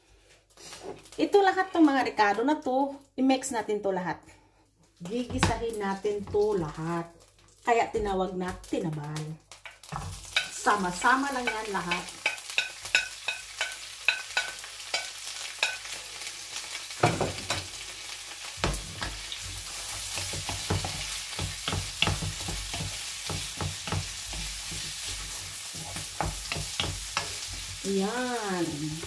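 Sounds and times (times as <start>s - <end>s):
vegetables sizzling in pan: 5.1s - 29.0s
spoon scraping pan: 9.8s - 16.0s, 18.6s - 28.0s
knife scraping pan: 18.9s - 27.8s.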